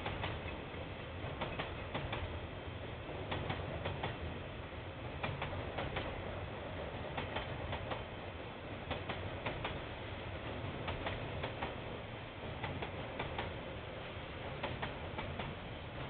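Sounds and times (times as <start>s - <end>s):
train wheels clicking over rail joint: 0.0s - 2.4s, 3.3s - 4.3s, 5.1s - 8.1s, 8.8s - 11.8s, 12.4s - 13.8s, 14.4s - 16.0s
low train rumble: 0.0s - 16.0s.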